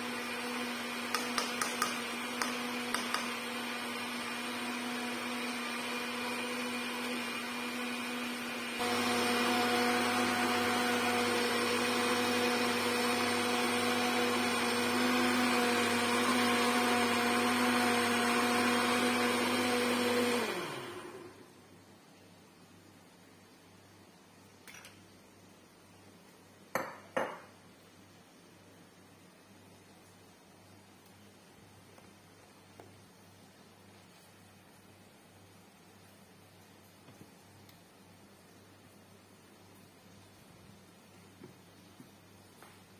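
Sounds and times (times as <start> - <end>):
blender motor whining: 0.0 - 21.4.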